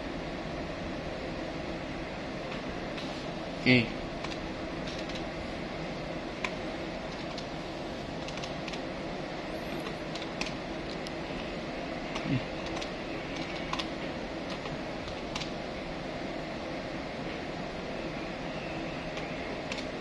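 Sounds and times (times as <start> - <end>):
steady background hum: 0.0 - 20.0
calculator keys clicking: 4.2 - 5.3, 6.4 - 7.5, 8.2 - 8.8, 9.8 - 10.6, 12.1 - 13.9, 14.5 - 15.5, 19.2 - 19.9.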